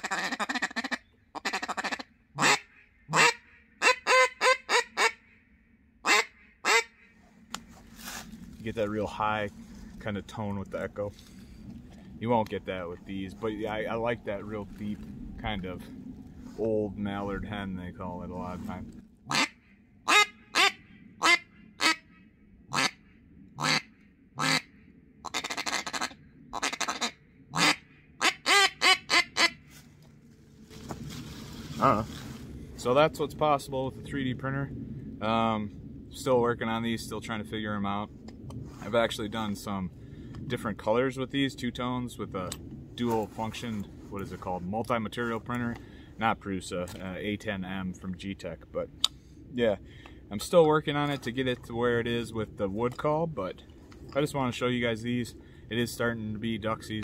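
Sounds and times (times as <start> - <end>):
duck call quacking: 0.0 - 5.2, 6.0 - 7.0, 19.3 - 22.1, 22.7 - 23.0, 23.6 - 29.6.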